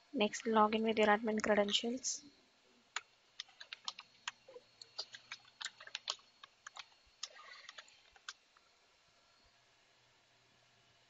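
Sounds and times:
keyboard typing: 3.0s - 8.4s.

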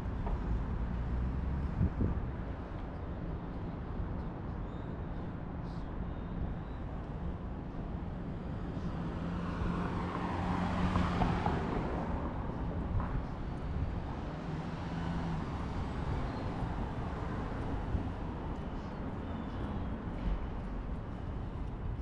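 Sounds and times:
road noise: 0.0s - 22.0s
vehicle passing: 8.9s - 12.3s.

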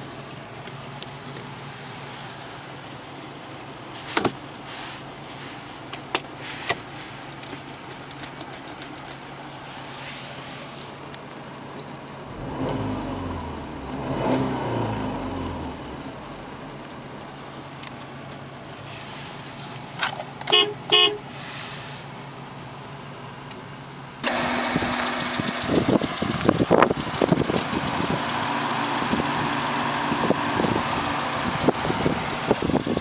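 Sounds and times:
car engine idling and revving: 0.0s - 33.0s
sharp clicks and knocks: 7.4s - 9.2s.

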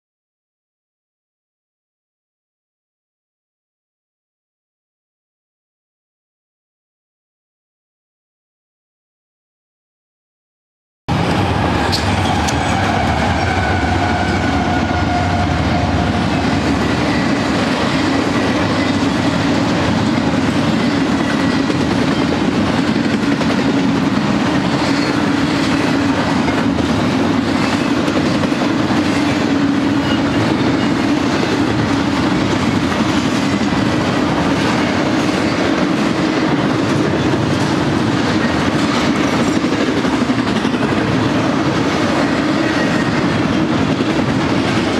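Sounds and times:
freight train wheels on rail: 11.1s - 44.9s.

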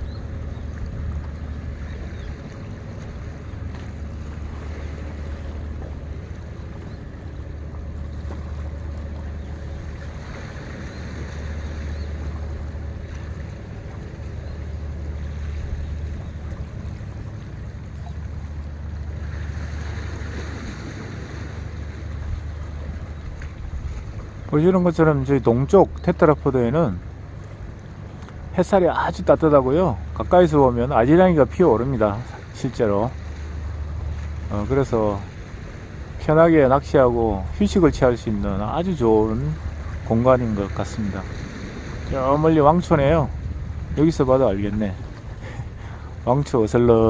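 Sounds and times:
faint steady hum: 0.0s - 47.0s
sea wash: 0.0s - 47.0s
wind buffeting microphone: 27.0s - 46.8s.

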